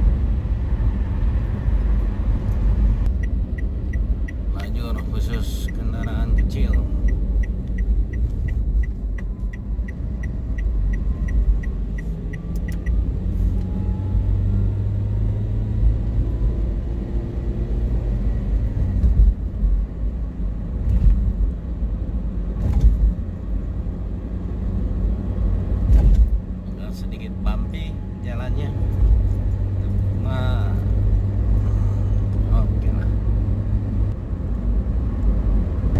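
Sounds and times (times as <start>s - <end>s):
car engine and tyre rumble: 0.0s - 35.9s
light regular ticking: 3.0s - 13.0s.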